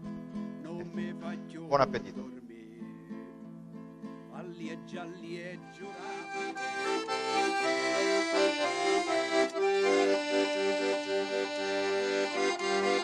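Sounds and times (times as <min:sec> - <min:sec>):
piano accordion playing a tune: 0:05.6 - 0:13.0.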